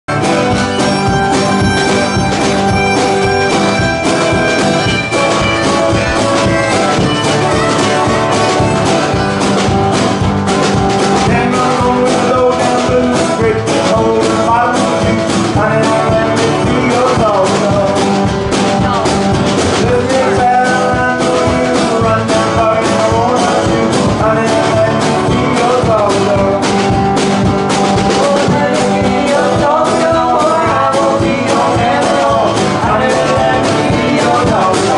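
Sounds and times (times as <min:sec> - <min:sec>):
acoustic guitar: 0:00.0 - 0:34.9
drums: 0:00.0 - 0:34.9
upright bass: 0:00.0 - 0:34.9
banjo: 0:00.1 - 0:34.9
harmonica: 0:00.1 - 0:34.9
woman singing: 0:18.7 - 0:22.3.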